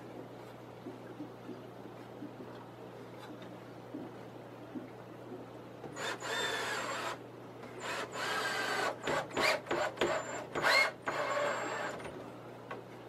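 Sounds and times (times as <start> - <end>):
drill motor whining: 6.0 - 7.2, 7.8 - 12.0
short drill trigger pulses: 6.0 - 7.2, 7.8 - 12.0.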